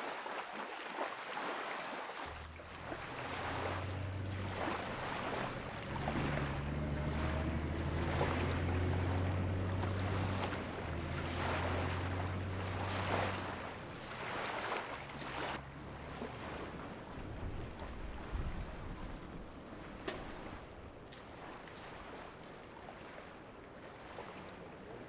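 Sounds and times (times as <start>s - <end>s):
low steady hum: 2.3s - 14.2s.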